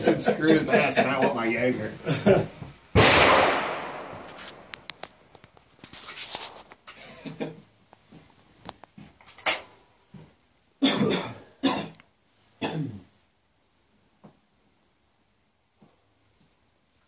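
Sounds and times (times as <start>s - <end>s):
person coughing: 10.8s - 12.0s, 12.6s - 13.0s.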